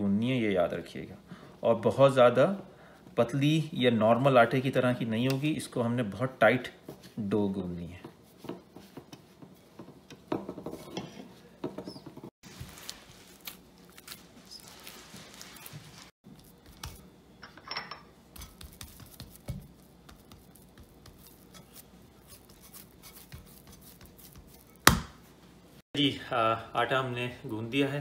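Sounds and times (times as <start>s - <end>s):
hands kneading dough: 12.0s - 17.2s, 18.3s - 25.4s.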